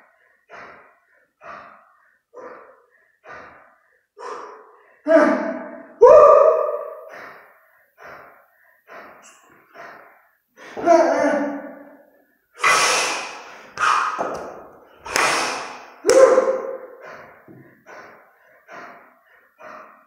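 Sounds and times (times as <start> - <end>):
man breathing heavily: 0.0 - 6.0, 6.8 - 10.8, 11.6 - 20.0
man grunting: 5.0 - 5.7.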